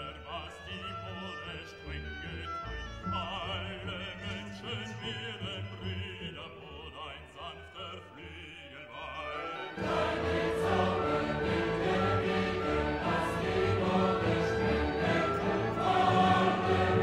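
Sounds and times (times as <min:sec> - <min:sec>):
operatic choir singing: 0:09.3 - 0:17.0.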